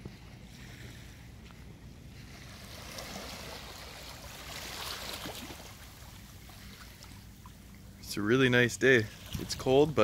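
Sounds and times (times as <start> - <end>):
small waves lapping on rocks: 2.2 - 7.6.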